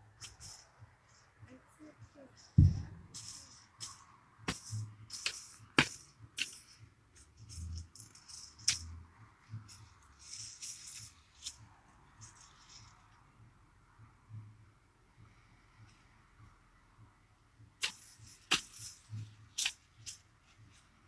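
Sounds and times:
hoe blade knocking soil: 0:02.6 - 0:06.8
weeds rustling: 0:09.6 - 0:11.6.

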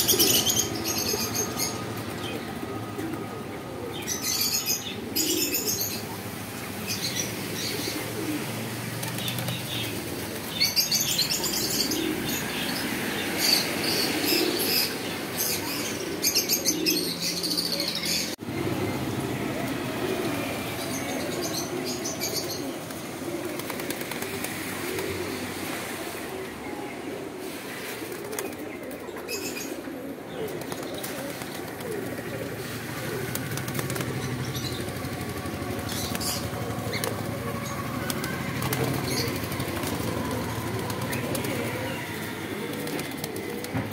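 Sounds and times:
pigeons cooing: 0:00.0 - 0:43.9
wings flapping: 0:08.9 - 0:12.2, 0:22.6 - 0:25.3, 0:28.0 - 0:29.0, 0:30.4 - 0:43.9.

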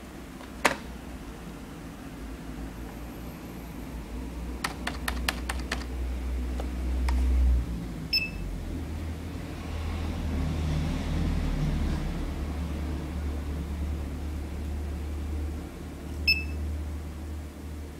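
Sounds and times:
barcode scanner beep: 0:08.1 - 0:08.4, 0:16.3 - 0:16.6.

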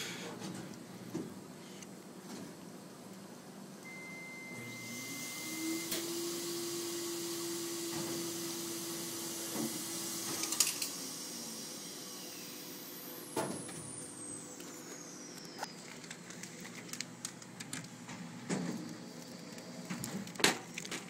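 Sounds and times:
motor hum: 0:04.5 - 0:21.0
high falling whine: 0:11.0 - 0:17.0.

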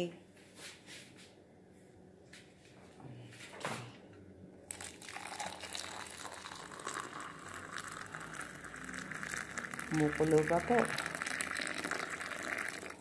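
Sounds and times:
hot water pouring into mug: 0:04.7 - 0:13.0.

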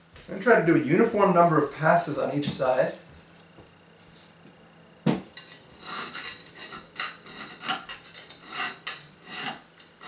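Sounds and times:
hand file scraping metal: 0:05.8 - 0:10.0.

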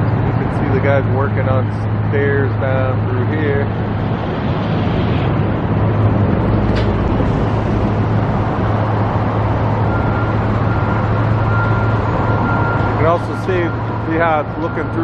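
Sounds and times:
vehicle engines droning: 0:00.0 - 0:15.0.

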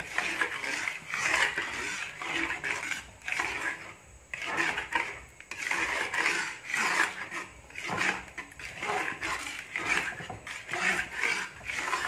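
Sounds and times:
metal spoon scraping a wok: 0:00.0 - 0:12.0.

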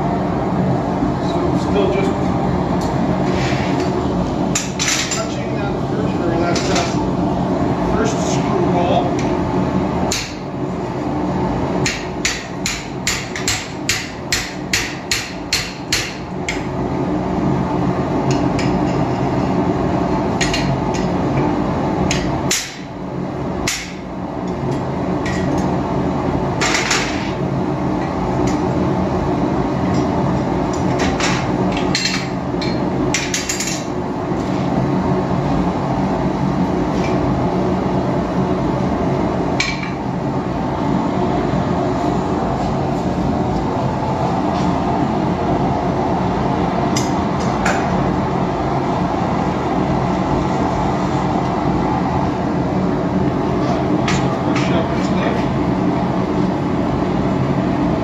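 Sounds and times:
hammer striking steel on anvil: 0:11.8 - 0:16.7.

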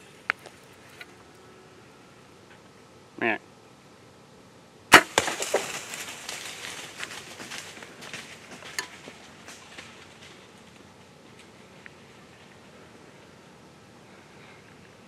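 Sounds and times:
gunshot: 0:04.9 - 0:05.6
deer crashing through dry brush: 0:04.9 - 0:10.8.

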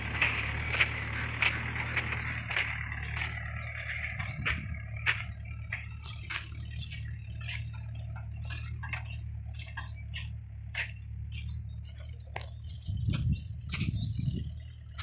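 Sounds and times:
loud low rumble: 0:00.0 - 0:08.4
sharp clicks and crunches: 0:00.0 - 0:14.0
tractor diesel engine drone: 0:00.0 - 0:15.0.

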